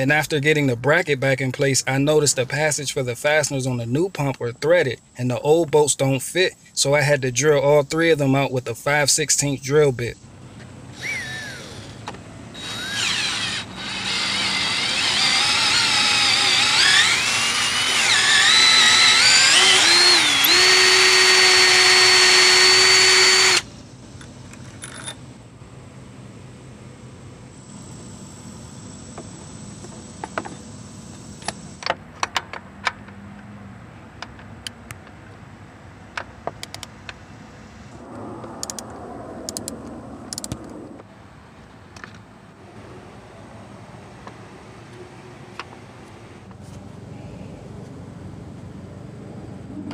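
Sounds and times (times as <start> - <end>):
electric drill whining: 10.9 - 23.7.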